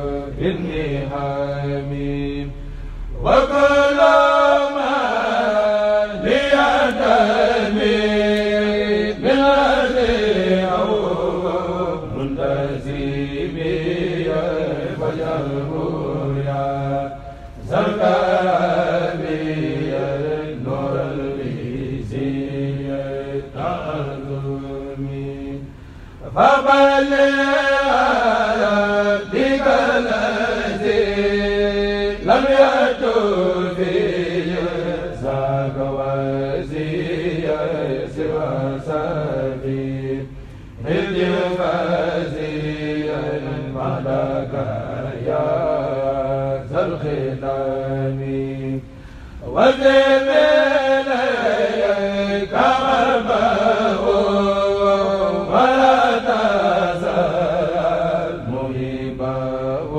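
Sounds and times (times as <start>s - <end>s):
man chanting into microphone: 0.0s - 25.6s.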